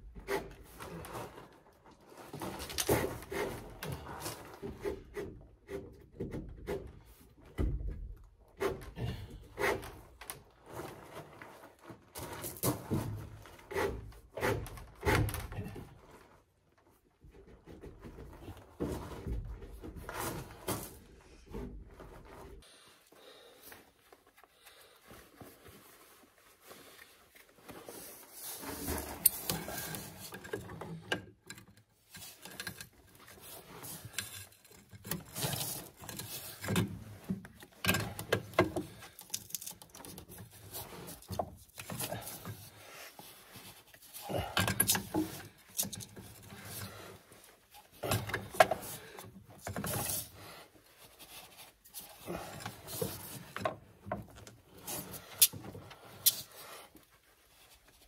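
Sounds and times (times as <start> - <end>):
expansion tool clicking and scraping: 54.8 - 56.7.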